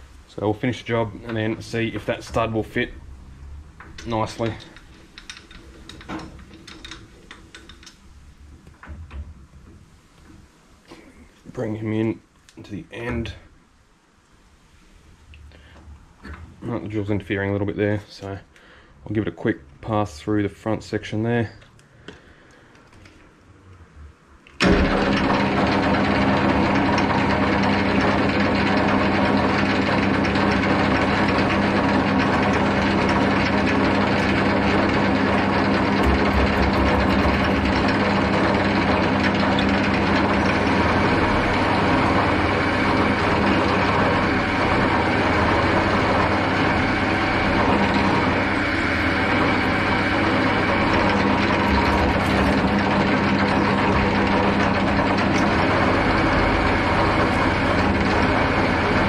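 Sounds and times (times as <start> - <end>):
metal lathe running: 3.8 - 8.0, 24.6 - 59.0
drill boring through metal: 24.6 - 59.0.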